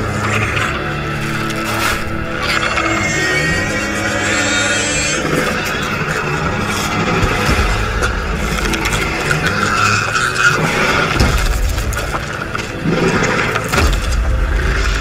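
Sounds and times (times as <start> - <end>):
creature howling call: 0.0 - 11.2
harsh screeching: 0.0 - 11.6
low rumble: 5.5 - 15.0.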